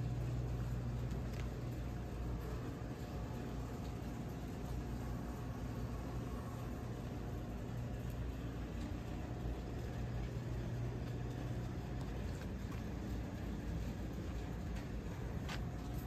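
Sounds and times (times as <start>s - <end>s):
low machinery hum: 0.0s - 16.0s.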